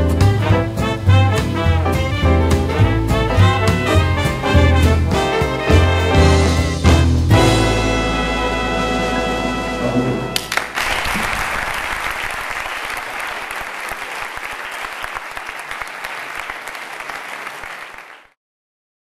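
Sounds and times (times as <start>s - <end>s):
brass music: 0.0s - 10.8s
audience applauding: 10.4s - 18.4s.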